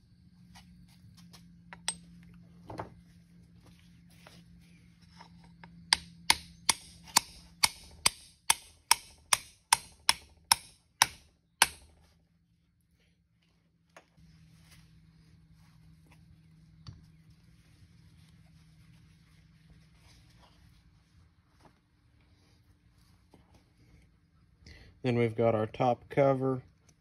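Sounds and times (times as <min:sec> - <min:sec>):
hammer striking metal: 0:05.9 - 0:11.9.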